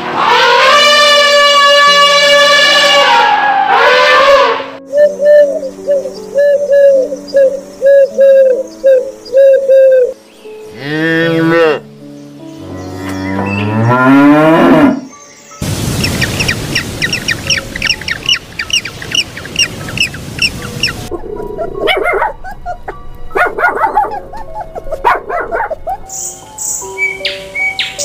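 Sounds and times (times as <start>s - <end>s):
bird chirping: 4.9s - 10.7s, 15.0s - 28.0s
cow mooing: 10.7s - 11.9s, 12.6s - 15.1s
animal calls: 16.0s - 26.3s.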